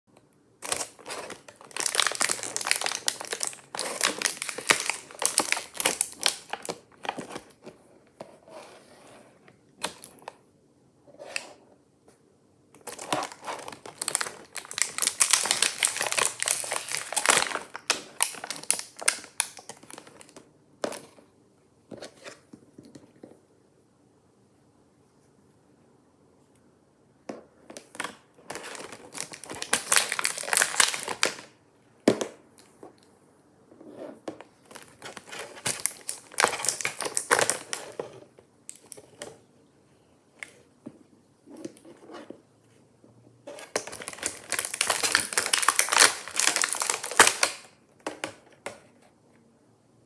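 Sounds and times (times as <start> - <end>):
plastic packaging crinkling: 0.6 - 7.8, 12.8 - 21.0, 27.8 - 31.5, 34.6 - 39.3, 43.5 - 47.8.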